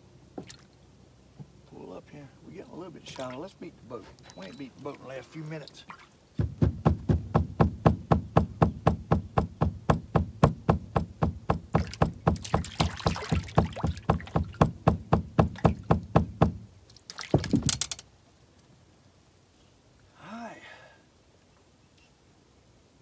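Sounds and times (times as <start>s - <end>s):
stick knocking on boat deck: 6.4s - 16.6s, 17.3s - 18.0s.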